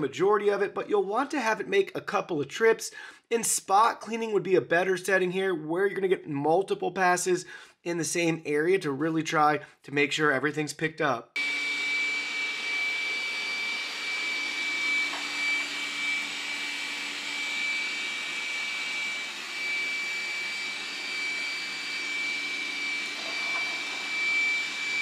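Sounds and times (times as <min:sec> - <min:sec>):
robot vacuum running: 0:11.4 - 0:25.0.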